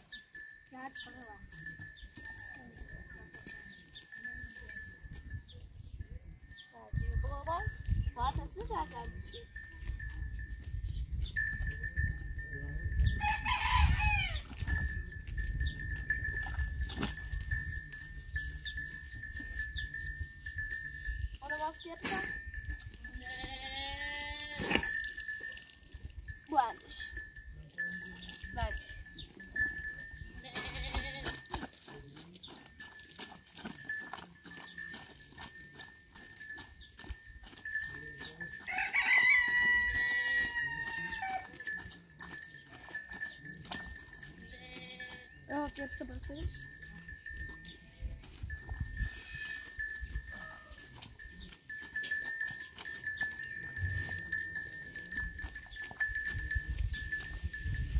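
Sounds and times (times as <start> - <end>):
farm animal calling: 13.0 - 14.9, 15.6 - 25.6, 27.8 - 56.4.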